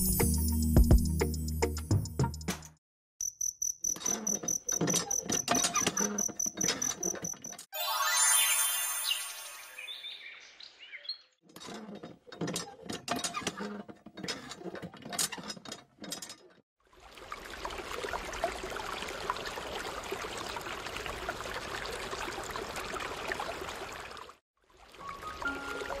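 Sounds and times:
music: 0:00.0 - 0:02.8, 0:07.8 - 0:09.8, 0:25.2 - 0:26.0
hand pump lever clicking and creaking: 0:03.9 - 0:07.7, 0:11.5 - 0:16.6
water pouring into plastic pool: 0:16.8 - 0:26.0.

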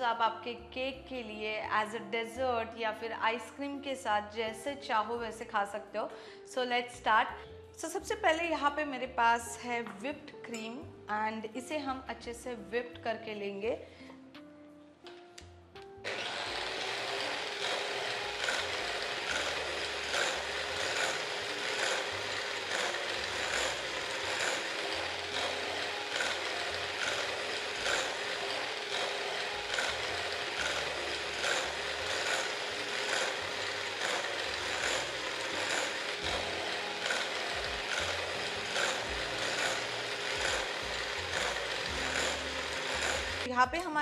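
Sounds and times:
electric hand mixer whipping cream: 0:16.1 - 0:43.5.

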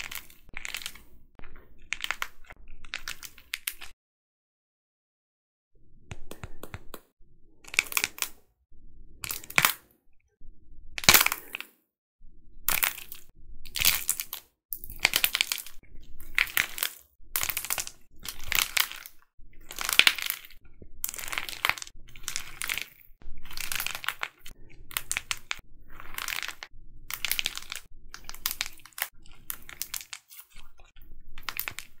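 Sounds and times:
dried clay crunching and crackling: 0:00.0 - 0:04.0, 0:12.7 - 0:32.0.

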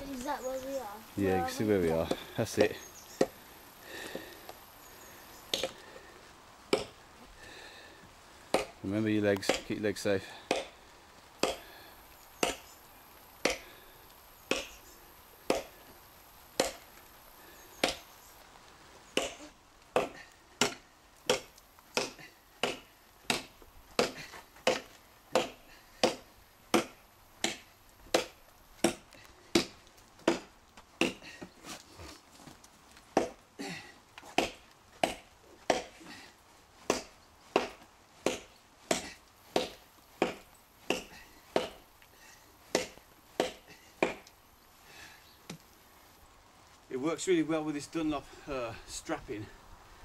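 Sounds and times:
tomahawk chopping into log: 0:08.5 - 0:08.8, 0:10.5 - 0:10.7, 0:16.6 - 0:16.8, 0:20.0 - 0:31.2, 0:34.4 - 0:35.9, 0:36.9 - 0:41.8, 0:42.7 - 0:44.2.

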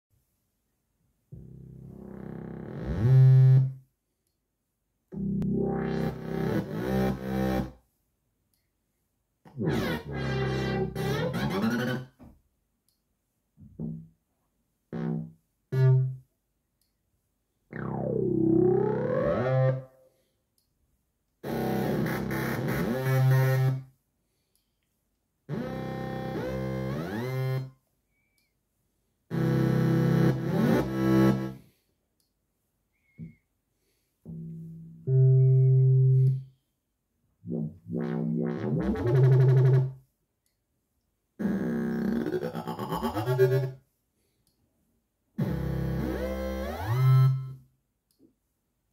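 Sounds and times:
synthesizer bass notes: 0:01.4 - 0:03.8, 0:05.1 - 0:07.7, 0:09.5 - 0:12.1, 0:15.0 - 0:16.2, 0:17.7 - 0:20.0, 0:21.4 - 0:23.7, 0:29.3 - 0:31.6, 0:34.3 - 0:36.4, 0:37.4 - 0:40.0, 0:45.4 - 0:47.6
sweeping synth bass note: 0:09.6 - 0:12.0, 0:17.7 - 0:19.9.

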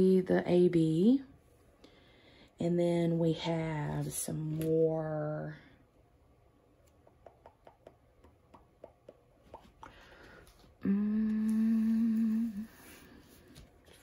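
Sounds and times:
woman humming: 0:10.8 - 0:12.9.

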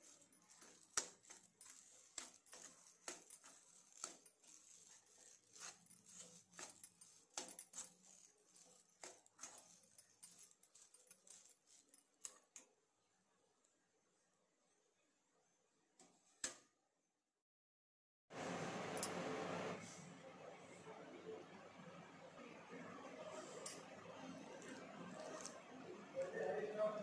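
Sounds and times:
spoon tapping and scraping pan: 0:00.0 - 0:12.6.

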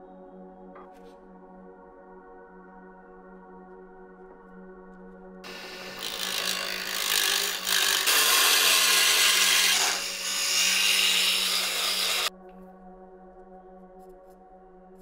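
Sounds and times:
chisel scraping wood on lathe: 0:05.5 - 0:12.3.

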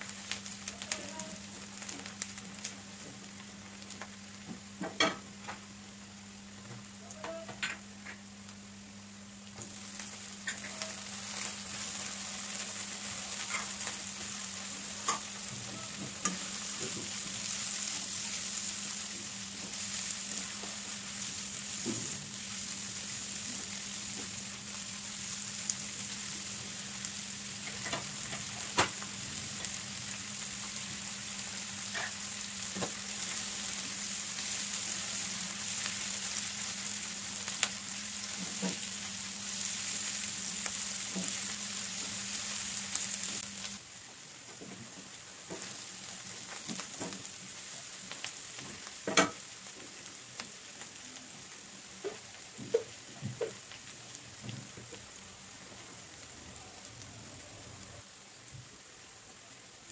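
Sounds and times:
vegetables sizzling in oil: 0:00.0 - 0:59.9.

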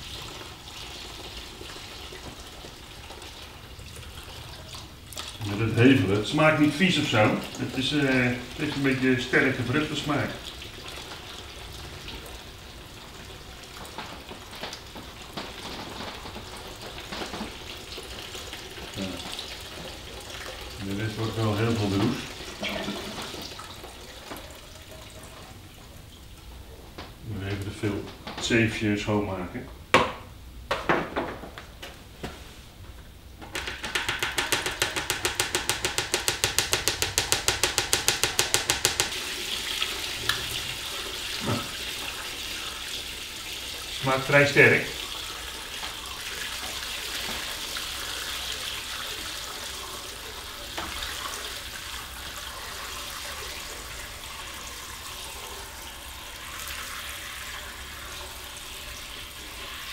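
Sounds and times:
liquid trickling and splashing: 0:00.0 - 0:27.1, 0:38.3 - 0:59.9
hose and buckets knocking: 0:13.7 - 0:20.0, 0:21.1 - 0:24.5, 0:33.4 - 0:39.3.

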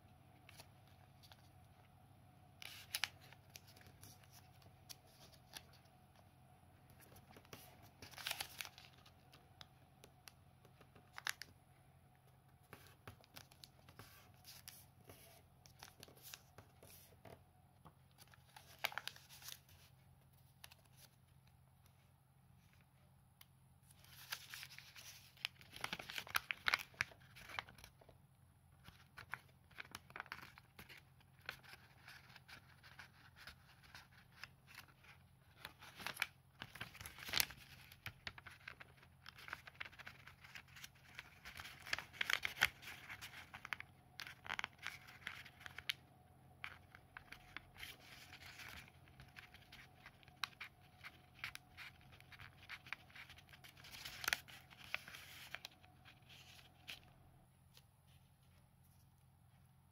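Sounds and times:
paper rustling and crinkling: 0:02.6 - 0:05.9, 0:06.9 - 0:09.4, 0:10.8 - 0:11.6, 0:18.1 - 0:21.2, 0:23.9 - 0:28.1, 0:28.8 - 0:46.0, 0:46.6 - 0:59.1.

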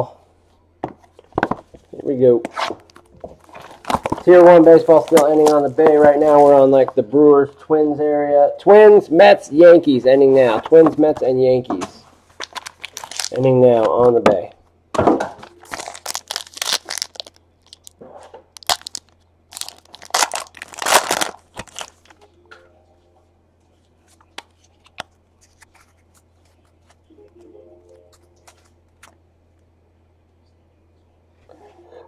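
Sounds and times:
foil wrapper tearing and crinkling: 0:12.4 - 0:13.4, 0:15.6 - 0:17.9, 0:18.6 - 0:22.1.

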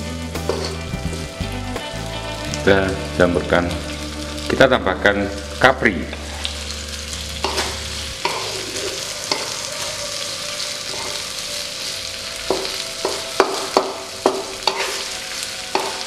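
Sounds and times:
vegetables sizzling in hot oil: 0:00.0 - 0:16.0
spatula scraping and knocking pan: 0:00.4 - 0:01.2, 0:07.4 - 0:09.6, 0:12.5 - 0:15.1, 0:15.7 - 0:16.0.

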